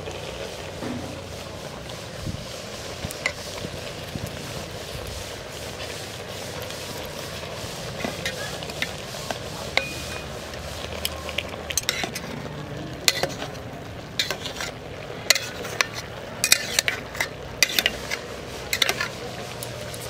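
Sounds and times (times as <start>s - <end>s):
metal spatula scraping rice in pot: 0.7s - 4.0s, 4.6s - 12.4s, 13.0s - 20.0s
metal knocking on pot sides: 0.8s - 1.5s.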